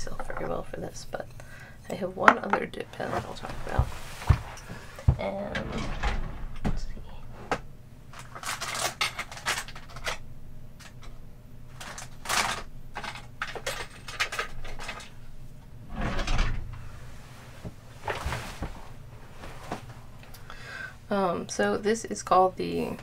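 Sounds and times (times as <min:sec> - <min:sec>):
rustling: 0:02.8 - 0:09.7, 0:15.9 - 0:20.2.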